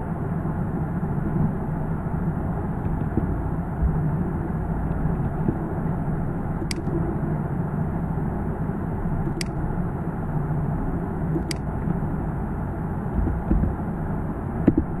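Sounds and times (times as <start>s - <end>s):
low background rumble: 0.0s - 15.0s
computer mouse clicks: 6.6s - 6.9s, 9.3s - 9.6s, 11.4s - 11.7s
dull thump: 13.2s - 13.8s.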